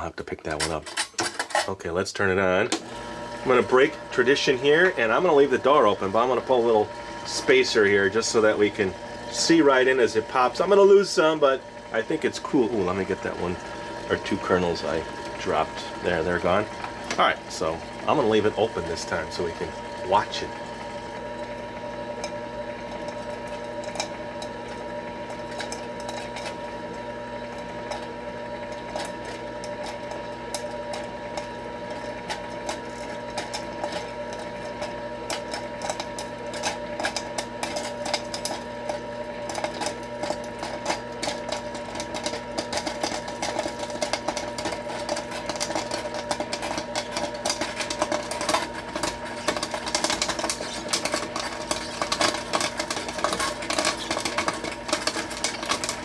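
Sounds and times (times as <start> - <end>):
popcorn maker motor humming: 0.0 - 56.0
popcorn kernels popping: 3.5 - 56.0.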